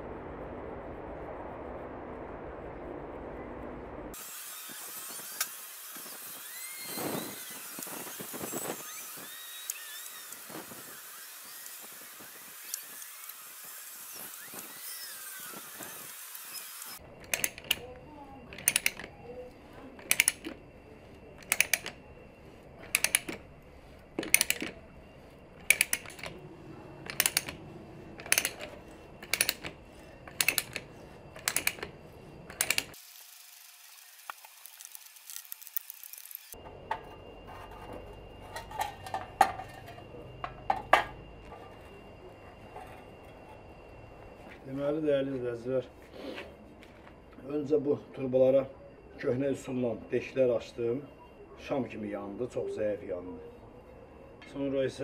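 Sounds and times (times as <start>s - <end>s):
ratchet pawl double clicks: 16.8s - 17.8s, 18.5s - 19.1s, 20.0s - 20.6s, 21.4s - 22.0s, 22.8s - 23.4s, 24.2s - 24.7s, 25.6s - 26.4s, 27.1s - 27.6s, 28.2s - 29.7s, 30.3s - 30.8s, 31.4s - 31.9s, 32.5s - 33.0s.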